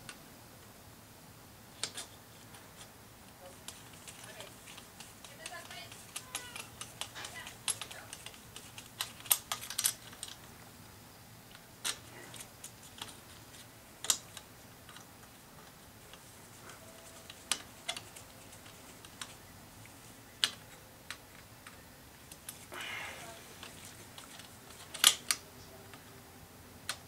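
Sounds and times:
sharp clicks of tools: 3.6 - 10.4, 23.6 - 25.4.

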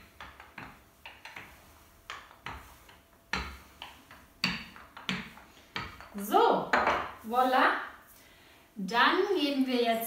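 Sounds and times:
rolling pin knocking on countertop: 0.0 - 7.2.

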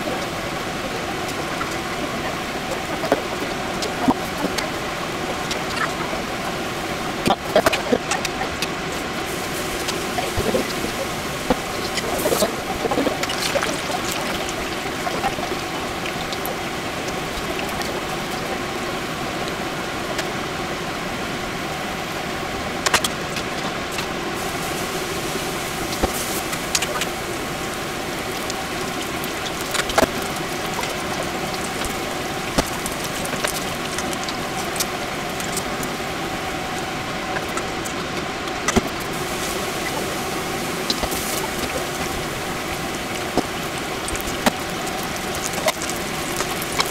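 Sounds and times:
batter sizzling in hot oil: 8.9 - 18.4, 24.4 - 36.0, 38.7 - 46.9.

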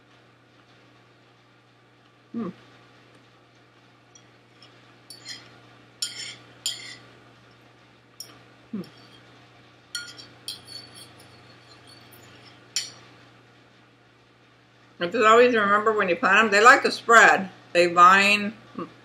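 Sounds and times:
fork clinking on ceramic plate: 4.2 - 7.0, 10.0 - 13.0.

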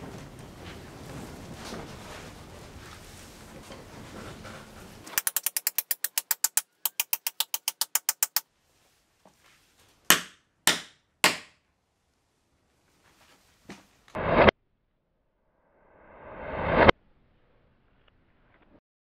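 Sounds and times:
hammer striking metal pins: 5.1 - 8.4, 10.1 - 11.6.

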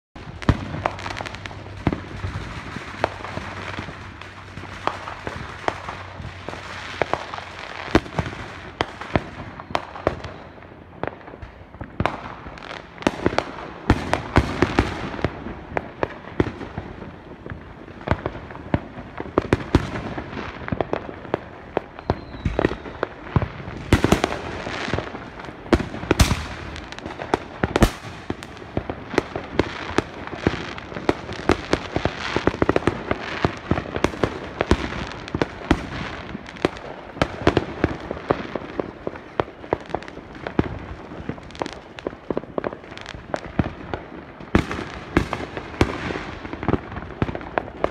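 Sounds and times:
fireworks bangs and pops: 0.2 - 47.9.

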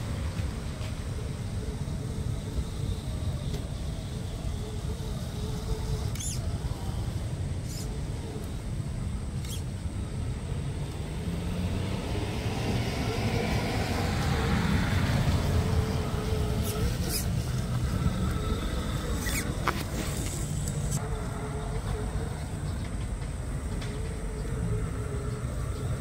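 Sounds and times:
electric motor and gear whine: 0.0 - 26.0
steady low rumble: 0.0 - 26.0
grass rustling against truck: 14.0 - 21.0.

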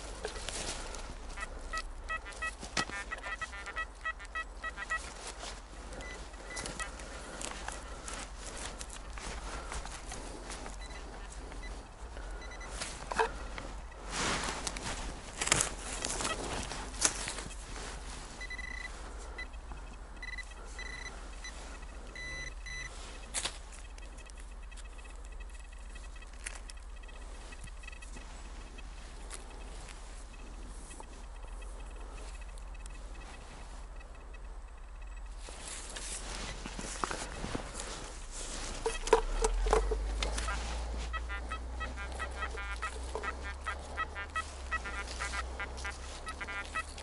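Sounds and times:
footsteps on forest litter: 0.0 - 33.9, 35.3 - 47.0
metal detector beeps: 0.0 - 47.0.

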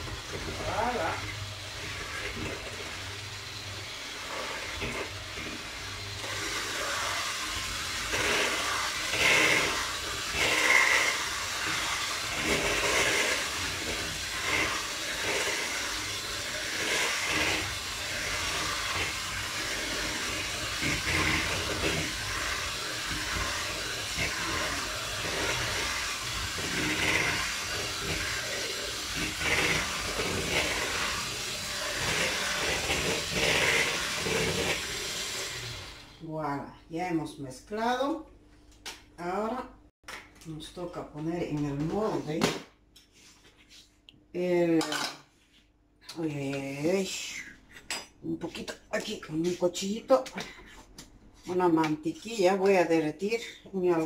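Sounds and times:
beaters scraping bowl: 0.0 - 36.1
electric mixer whirring: 0.0 - 36.2.

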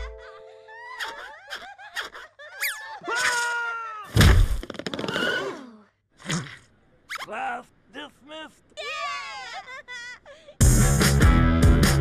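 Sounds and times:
cartoon yelps: 0.8 - 4.2, 8.8 - 9.6.

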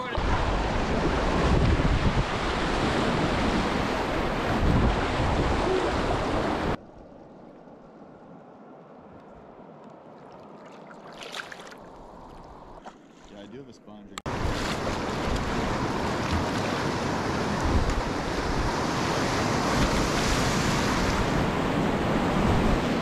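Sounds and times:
quiet flow of water: 5.6 - 18.6.

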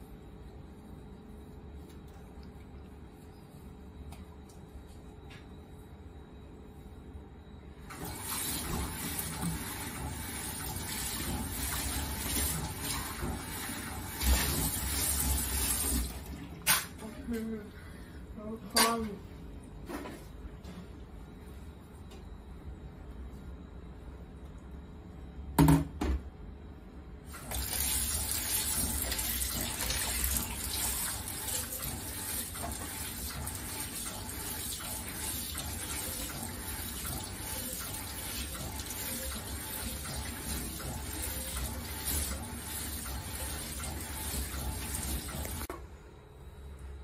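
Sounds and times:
tap water running onto plate: 27.3 - 45.7.

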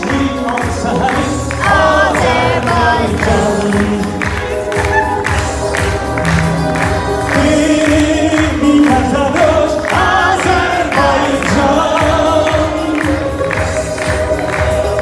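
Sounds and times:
man singing into a microphone: 0.0 - 4.7, 7.2 - 13.4
amplified instrumental accompaniment: 0.0 - 15.0.

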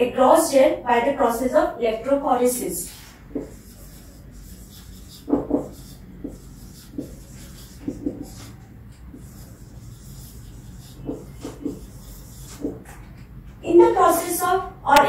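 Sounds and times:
marker pen writing on whiteboard: 2.4 - 15.0.

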